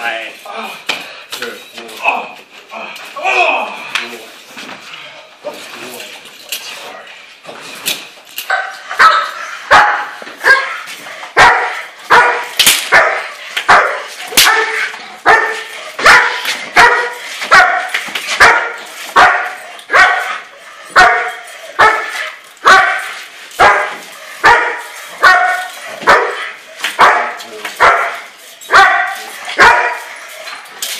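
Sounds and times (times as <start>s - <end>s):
dog barking: 8.5s - 30.2s.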